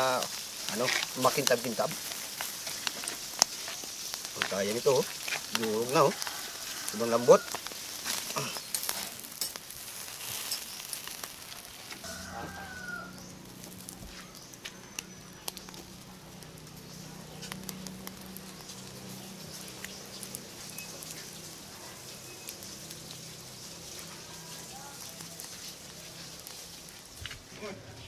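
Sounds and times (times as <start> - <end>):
pops and crackles: 0.0 - 12.2, 12.9 - 27.7
steak sizzling on grill: 0.0 - 28.0
chicken calling: 11.6 - 14.1.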